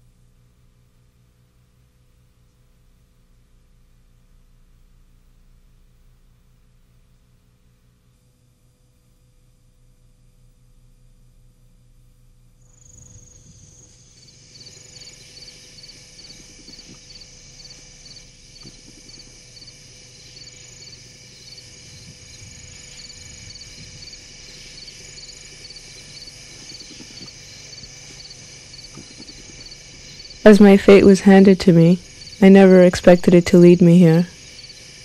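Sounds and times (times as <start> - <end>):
faint low hum: 0.0 - 35.0
insects trilling: 12.6 - 35.0
repeating cricket chirp: 12.6 - 35.0.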